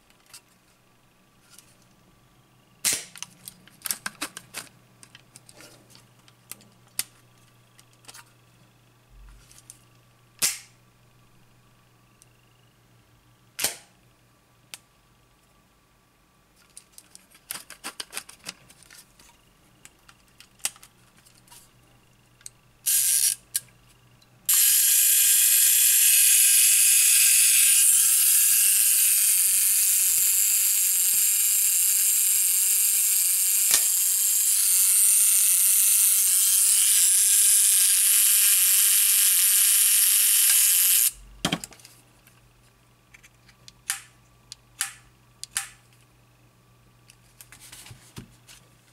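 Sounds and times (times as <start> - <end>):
loud steady hiss: 24.5 - 41.4.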